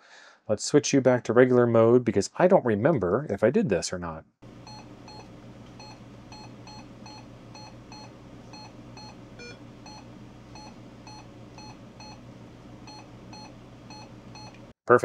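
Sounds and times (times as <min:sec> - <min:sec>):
low steady hum: 0:04.4 - 0:14.7.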